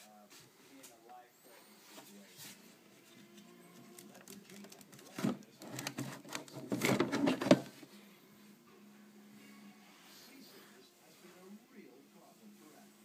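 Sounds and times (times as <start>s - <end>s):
hard plastic case clicking and clattering: 4.0s - 7.8s.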